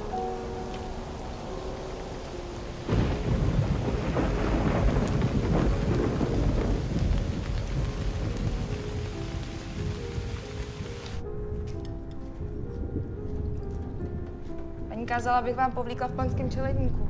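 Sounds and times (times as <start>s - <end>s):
steady rain: 0.0s - 17.0s
thunder clap and rumble: 0.9s - 11.2s.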